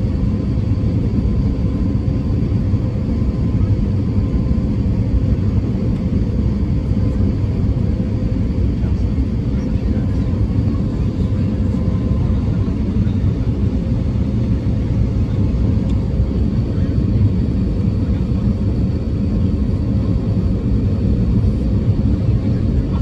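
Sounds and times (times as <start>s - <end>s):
airplane cabin engine rumble: 0.0s - 23.0s.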